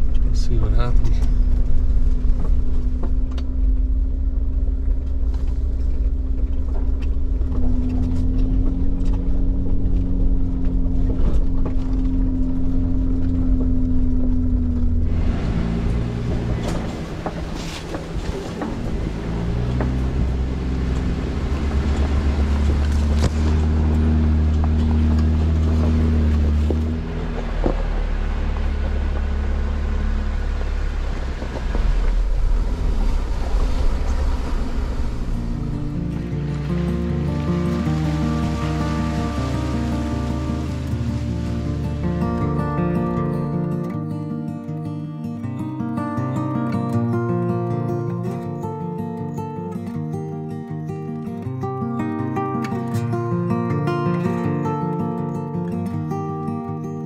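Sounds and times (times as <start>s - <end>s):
vehicle engine rumble: 0.0s - 44.7s.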